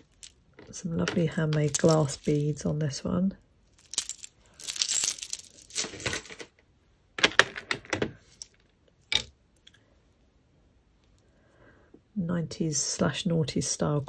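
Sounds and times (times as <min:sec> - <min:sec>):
jewellery beads clinking and rattling: 0:00.0 - 0:02.7, 0:03.7 - 0:06.6.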